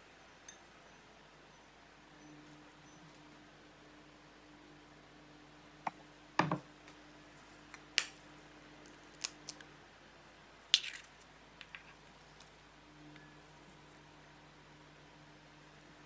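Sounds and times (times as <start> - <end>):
eggshell cracking: 10.7 - 12.5.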